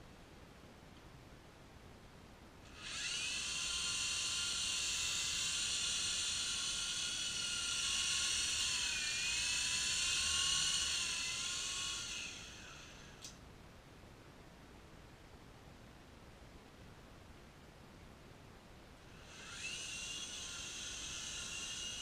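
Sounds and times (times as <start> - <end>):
toy helicopter motor whining: 2.7 - 13.3, 19.2 - 22.0.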